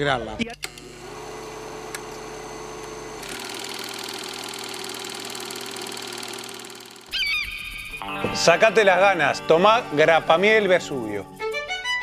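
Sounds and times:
electronic hum: 0:00.5 - 0:08.1.

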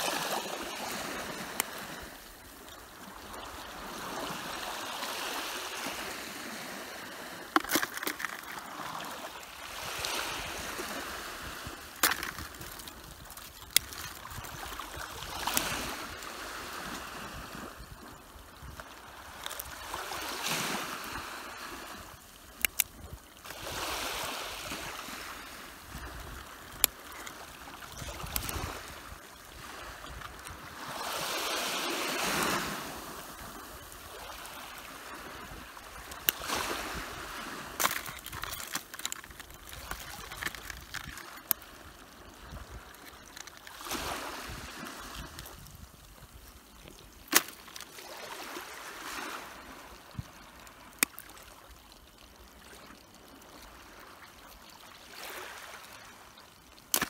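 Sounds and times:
small waves washing at shore: 0:00.0 - 0:57.0.

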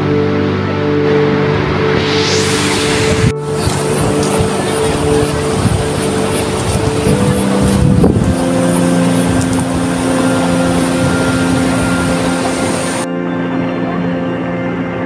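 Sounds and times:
music of long held notes: 0:00.0 - 0:15.0
steady hiss: 0:01.2 - 0:13.1.

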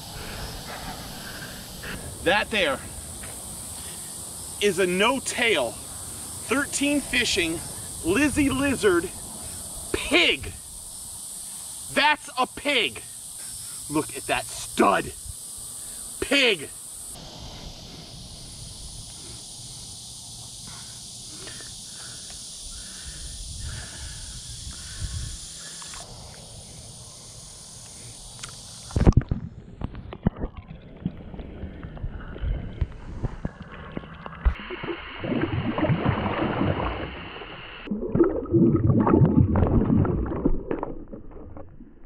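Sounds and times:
fish splashing: 0:34.4 - 0:41.8
shallow water sloshing: 0:37.9 - 0:41.9.

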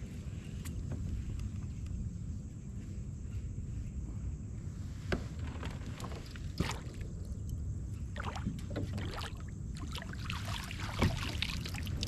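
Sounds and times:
low steady rumble: 0:00.0 - 0:12.0
water splashing: 0:08.2 - 0:12.0.

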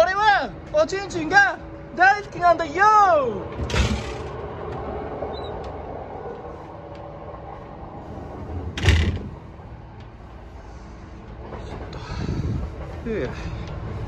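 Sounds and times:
train carriage rumble: 0:00.0 - 0:14.0
loud thump: 0:08.8 - 0:09.4.

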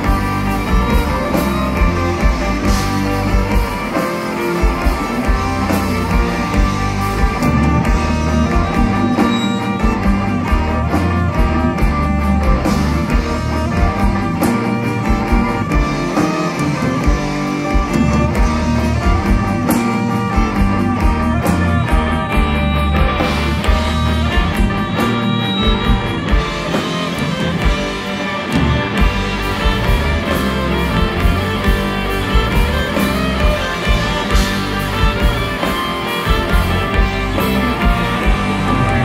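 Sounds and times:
fiddle: 0:00.0 - 0:39.0
live metal band playing: 0:00.0 - 0:39.0.

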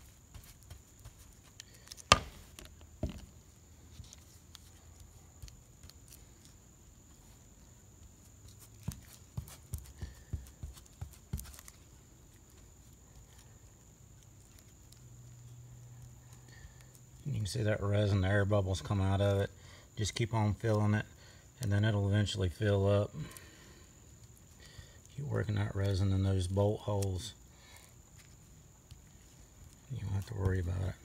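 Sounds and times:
handling knocks and taps: 0:01.9 - 0:03.3.

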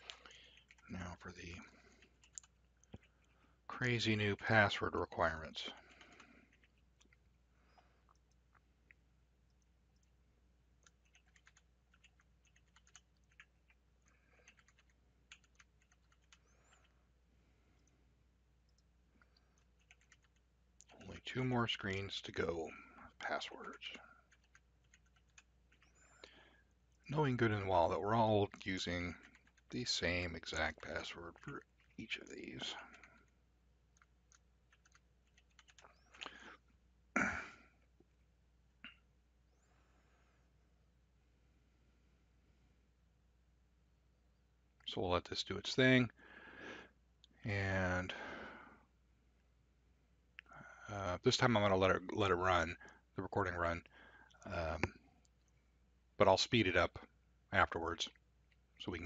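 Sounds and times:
computer keyboard typing: 0:00.1 - 0:03.3, 0:05.8 - 0:07.2, 0:10.8 - 0:16.9, 0:19.6 - 0:21.3, 0:23.6 - 0:26.0, 0:29.0 - 0:29.7, 0:34.0 - 0:36.3
keyboard keys tapping: 0:10.8 - 0:13.7, 0:34.7 - 0:36.2.

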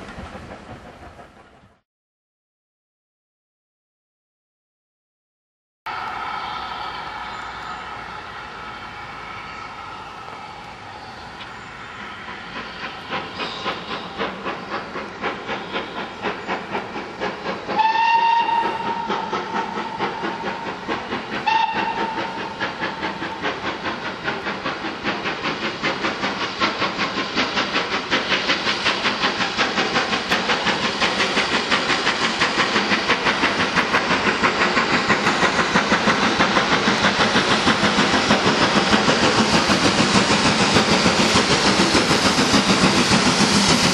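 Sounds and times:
steam locomotive exhaust beats: 0:00.0 - 0:01.8, 0:05.9 - 0:43.9
steam whistle blasts: 0:05.9 - 0:12.8, 0:17.7 - 0:20.6, 0:21.4 - 0:23.2.

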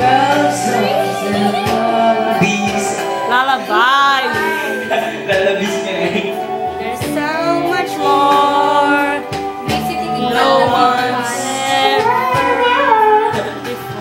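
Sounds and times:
man singing into microphone: 0:00.0 - 0:09.3
instrumental backing track: 0:00.0 - 0:14.0.

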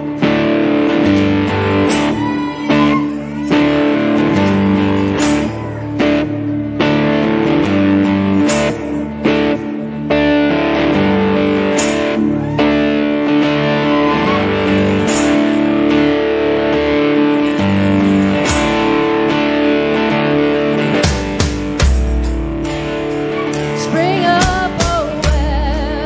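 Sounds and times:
electric guitar chords: 0:00.0 - 0:26.0
strummed guitar accent: 0:00.0 - 0:26.0.

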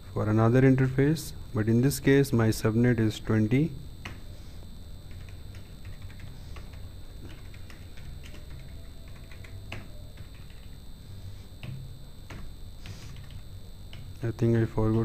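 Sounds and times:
faint steady hum: 0:00.0 - 0:15.0
keyboard typing: 0:05.1 - 0:10.8, 0:11.6 - 0:14.1.

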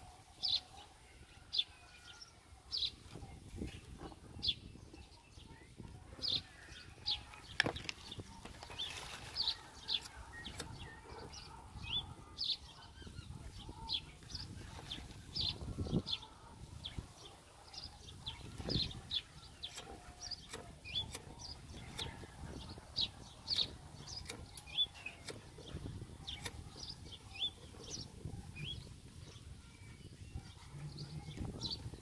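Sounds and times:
small birds chirping: 0:00.0 - 0:32.0
paper and kindling crinkling: 0:07.2 - 0:10.6, 0:14.2 - 0:15.4.

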